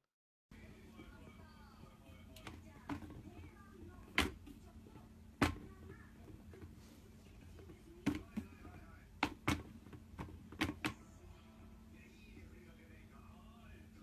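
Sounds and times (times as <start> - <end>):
plastic bin lid clacking: 2.4 - 4.6, 5.4 - 6.7, 7.6 - 11.0.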